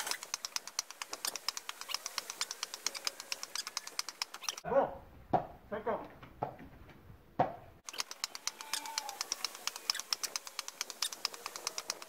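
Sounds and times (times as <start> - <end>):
tennis rackets hitting ball: 5.3 - 5.6, 7.4 - 7.7.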